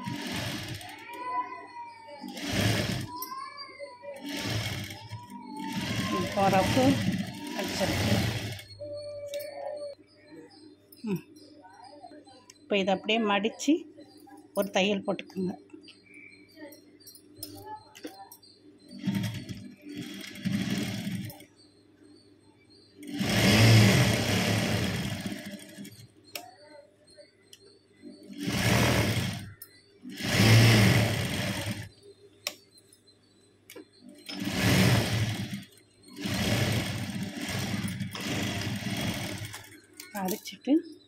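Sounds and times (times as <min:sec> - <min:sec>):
sewing machine stitching cloth: 0:00.0 - 0:01.2, 0:02.2 - 0:03.2, 0:04.1 - 0:08.9, 0:19.0 - 0:21.5, 0:23.0 - 0:26.4, 0:28.2 - 0:31.9, 0:34.2 - 0:40.4.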